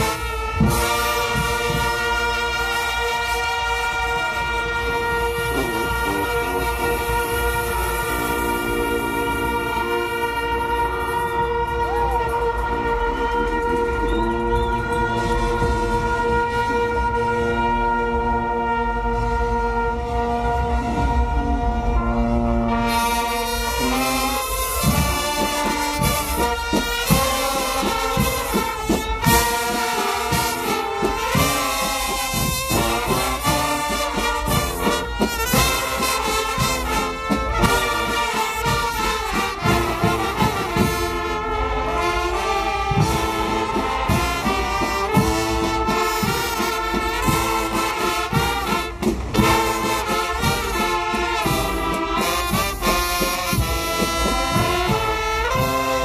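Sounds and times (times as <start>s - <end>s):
marching band playing: 0.0s - 56.0s.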